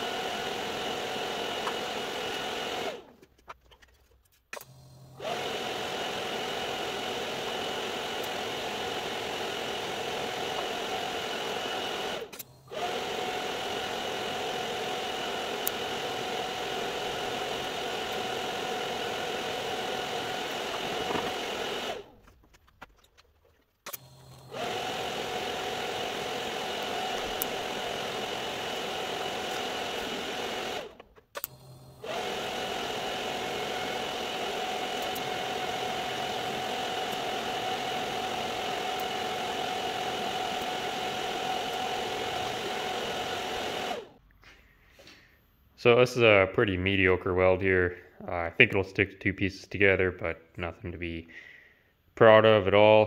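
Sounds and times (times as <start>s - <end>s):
welding arc buzzing: 4.5s - 22.4s, 23.8s - 44.2s.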